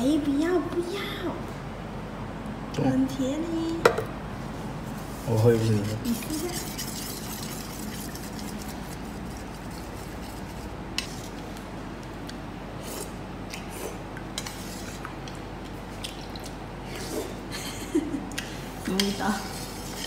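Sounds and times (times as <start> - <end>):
metal spoon scraping ceramic bowl: 5.6 - 9.0.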